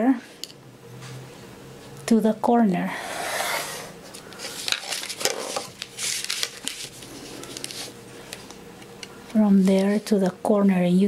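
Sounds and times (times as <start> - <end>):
pencil scratching along ruler: 3.0 - 3.9
paper rustles: 4.1 - 8.6, 9.5 - 10.2.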